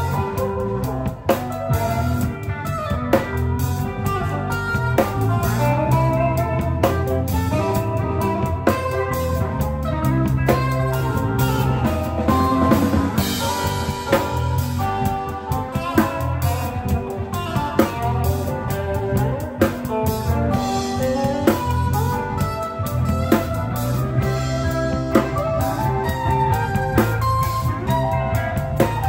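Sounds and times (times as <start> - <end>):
bass guitar: 0.0 - 29.0
drum kit with hard snare: 0.0 - 29.0
electric guitar: 0.0 - 29.0.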